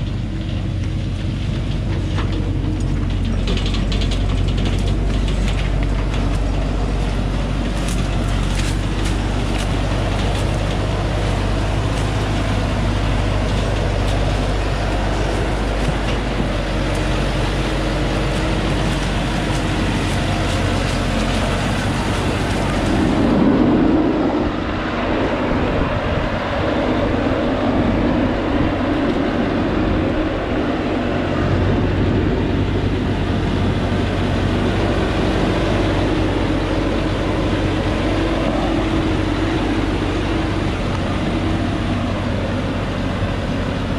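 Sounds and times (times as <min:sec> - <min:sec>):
stones crackling under tyres: 0:00.0 - 0:23.3
diesel engine under heavy load: 0:00.0 - 0:43.9.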